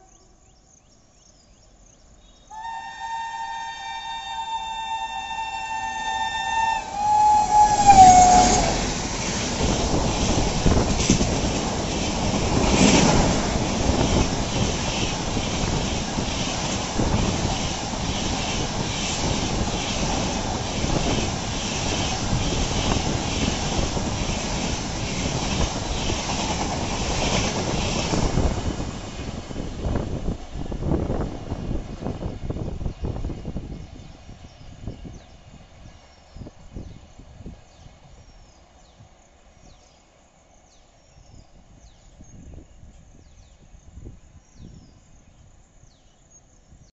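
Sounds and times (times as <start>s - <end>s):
locomotive two-tone horn blaring: 2.5s - 8.8s
train wheels clattering over rail joints: 8.0s - 28.8s.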